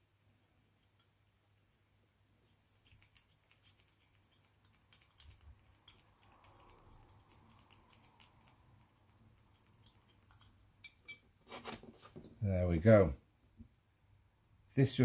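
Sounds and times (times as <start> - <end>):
metal parts clicking and tapping: 9.5 - 11.2.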